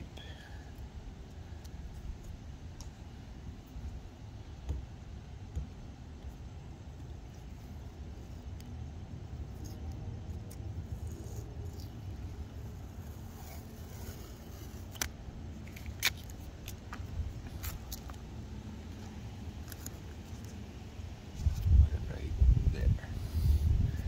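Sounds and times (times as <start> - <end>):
low outdoor rumble: 0.0 - 24.0
tape pulled and torn: 9.3 - 20.7.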